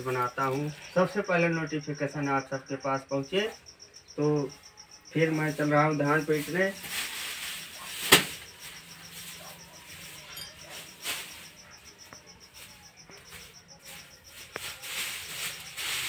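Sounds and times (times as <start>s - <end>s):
dry straw rustling and crackling: 0.0s - 1.1s, 5.2s - 16.0s
insect chirping: 0.0s - 16.0s.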